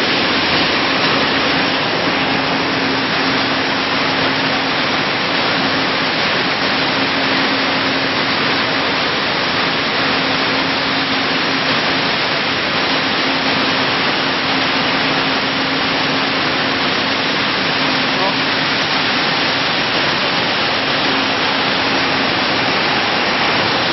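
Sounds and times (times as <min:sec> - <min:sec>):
seed-cleaning machine running: 0:00.0 - 0:23.9.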